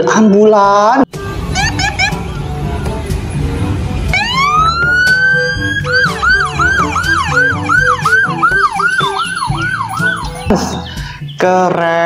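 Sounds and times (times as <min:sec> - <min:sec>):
ambulance siren wailing and yelping: 0:01.4 - 0:03.0, 0:04.1 - 0:10.5.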